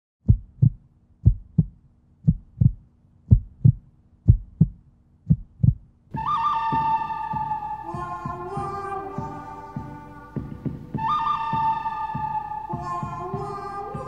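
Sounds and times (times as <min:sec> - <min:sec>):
heartbeat thumps: 0:00.2 - 0:14.0
sustained music tones: 0:06.1 - 0:14.0.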